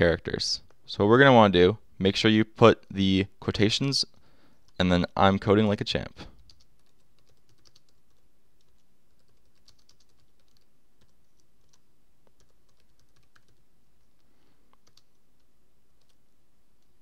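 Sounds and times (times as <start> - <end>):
low steady hum: 0.0 - 17.0
typing on computer keyboard: 6.5 - 16.2.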